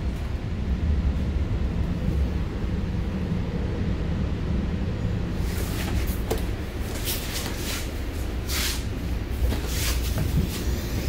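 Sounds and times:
train rumbling from inside: 0.0s - 11.0s.

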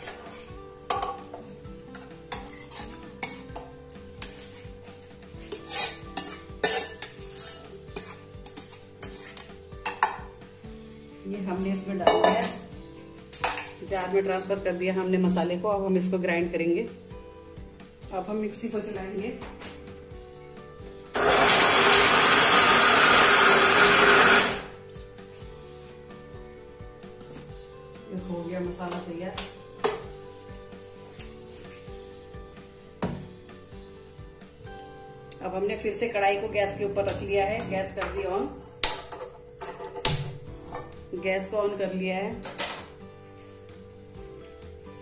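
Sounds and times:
steel spoon scraping a pan: 1.9s - 10.1s
mixer grinder running: 21.1s - 24.8s.

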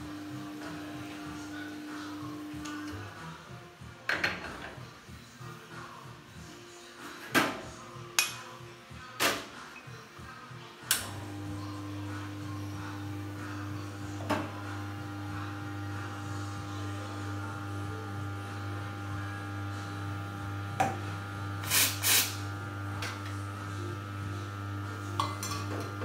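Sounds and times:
espresso machine humming: 0.0s - 3.2s, 11.0s - 26.0s.

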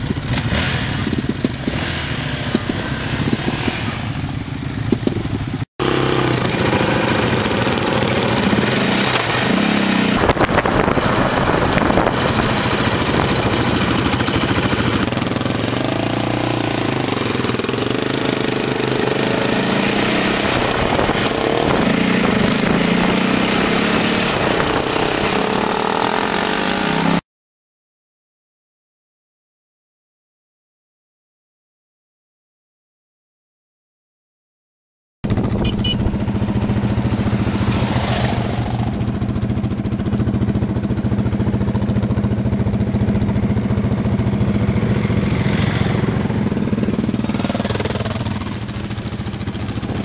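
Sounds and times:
quad bike engine revving: 0.0s - 27.2s, 35.3s - 50.0s
wind on microphone: 10.1s - 14.9s, 20.3s - 25.4s.

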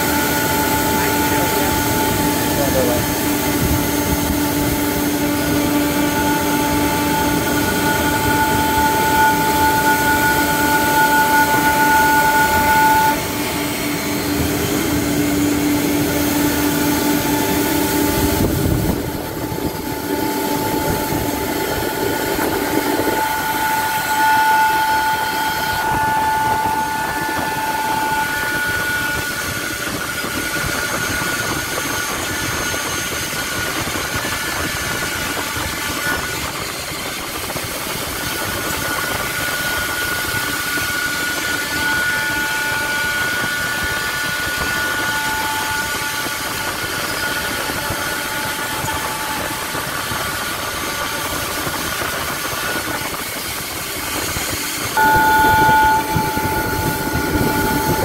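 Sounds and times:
cnc router spindles whining: 0.0s - 58.0s
dense machine noise: 0.0s - 58.0s
low machine hum: 0.0s - 58.0s.

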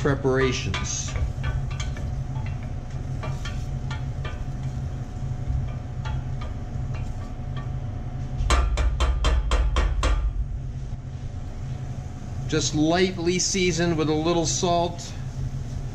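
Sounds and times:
low hum: 0.0s - 15.9s
sharp knocks: 8.4s - 10.4s.

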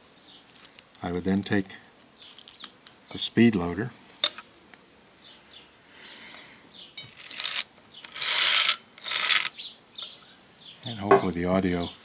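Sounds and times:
metal balls rattling: 7.0s - 9.5s.

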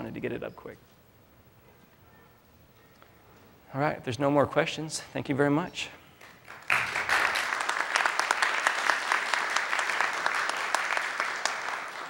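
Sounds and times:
audience applauding: 6.2s - 12.0s.

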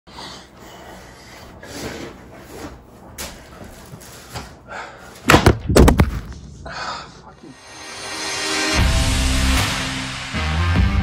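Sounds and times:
loud thumps: 5.3s - 6.5s.

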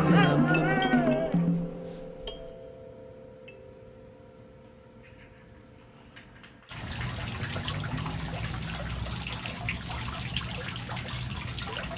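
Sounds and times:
trickling water: 6.7s - 11.9s.

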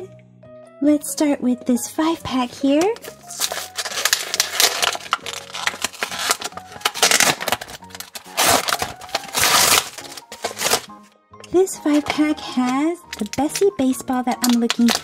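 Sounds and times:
plastic packaging crackling: 2.7s - 11.0s, 11.9s - 15.0s
cardboard peeling from plastic: 3.0s - 11.0s.

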